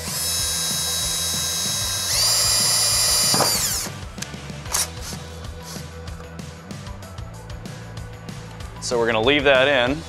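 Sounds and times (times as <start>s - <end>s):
cordless drill whining: 0.0s - 4.0s.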